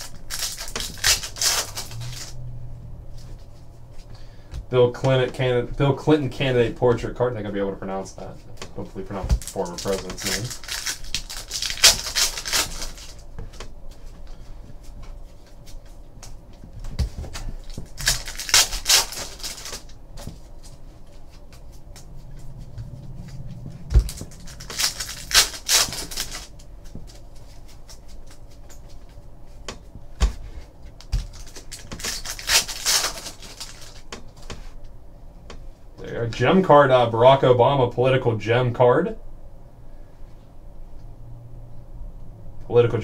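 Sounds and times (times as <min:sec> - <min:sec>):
foil wrapper crinkling and tearing: 0:00.0 - 0:02.3, 0:09.4 - 0:13.3, 0:17.3 - 0:20.0, 0:24.0 - 0:29.2, 0:31.0 - 0:34.5.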